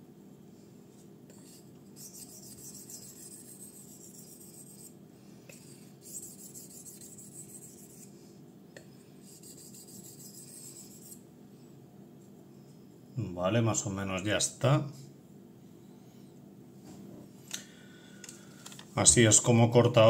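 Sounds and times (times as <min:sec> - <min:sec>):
knife scraping on whetstone: 0:01.5 - 0:04.9.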